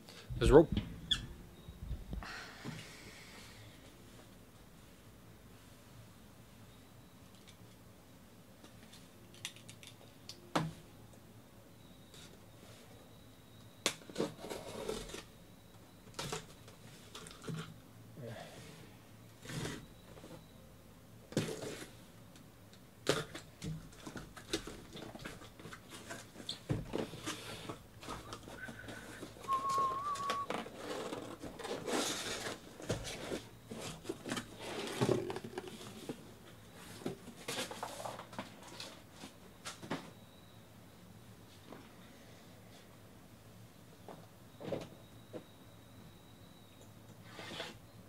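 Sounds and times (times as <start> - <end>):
cardboard flaps scraping and rustling: 29.5 - 36.2.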